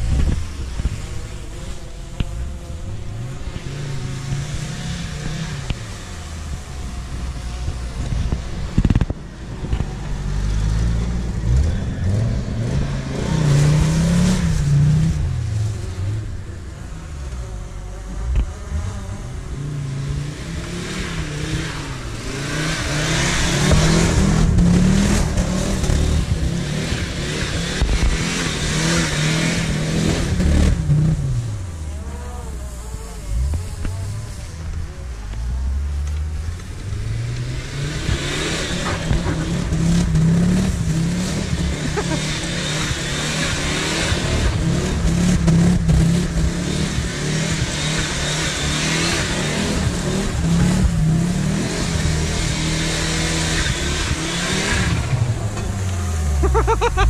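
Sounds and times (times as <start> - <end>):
car engine revving: 0.0 - 57.0
tyres churning through mud: 18.3 - 57.0.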